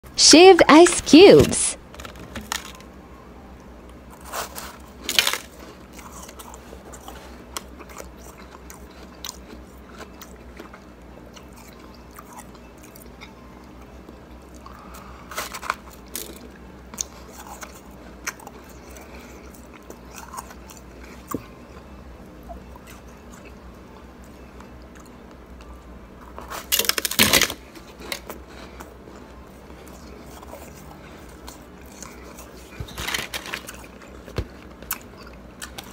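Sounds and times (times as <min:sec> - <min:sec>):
crunching of chewed ice: 0:04.1 - 0:13.3, 0:14.5 - 0:21.4, 0:26.2 - 0:29.2, 0:29.8 - 0:35.9.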